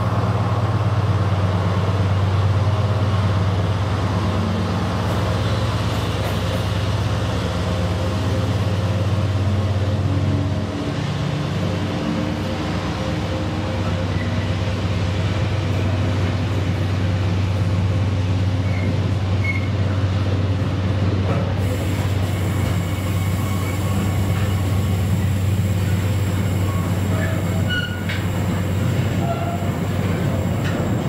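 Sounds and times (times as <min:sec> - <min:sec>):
freight train wheels rumbling: 0:00.0 - 0:31.0
high wheel squeaks: 0:18.6 - 0:19.8, 0:22.4 - 0:31.0.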